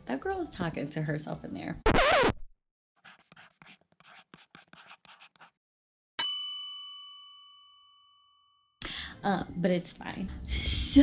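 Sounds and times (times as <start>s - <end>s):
pen scribbling strokes: 3.0s - 5.6s
bright bell-like ding: 6.2s - 8.7s.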